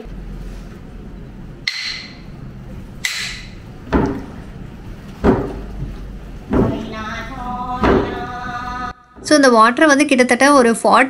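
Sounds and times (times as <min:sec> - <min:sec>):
wooden paddle thuds: 0:03.0 - 0:04.4, 0:05.1 - 0:07.0, 0:07.8 - 0:08.3.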